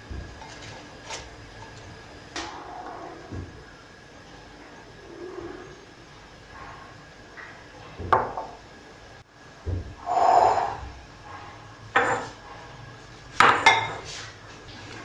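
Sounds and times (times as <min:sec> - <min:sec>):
dishes knocking on countertop: 0:08.0 - 0:08.5.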